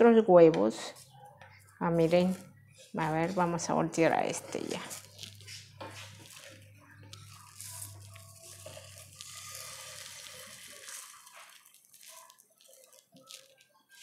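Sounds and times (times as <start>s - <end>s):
eggs sizzling: 1.9s - 14.0s
spatula scraping frying pan: 7.3s - 13.0s.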